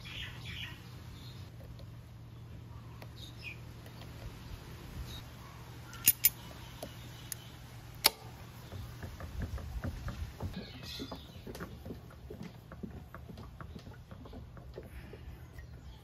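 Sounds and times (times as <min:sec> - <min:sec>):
locking pliers clicking: 0:05.9 - 0:06.4
pliers ticking and scraping: 0:05.9 - 0:08.2.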